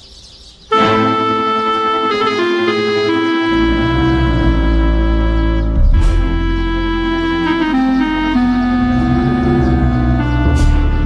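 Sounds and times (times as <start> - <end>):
sustained orchestral chords: 0.7 - 11.0
deep bass note: 2.3 - 11.0.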